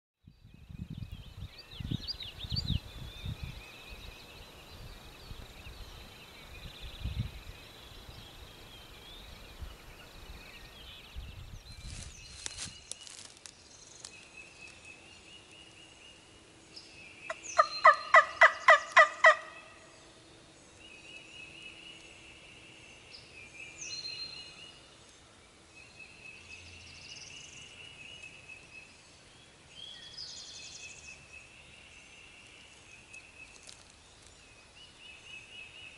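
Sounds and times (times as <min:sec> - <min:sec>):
songbirds chirping: 0:00.2 - 0:35.9
turkey call yelps: 0:17.6 - 0:19.7.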